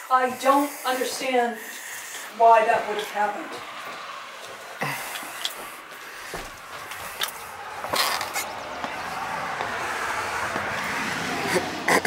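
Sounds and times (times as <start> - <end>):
tyre noise of passing vehicle: 0.0 - 12.0
footsteps: 1.6 - 11.0.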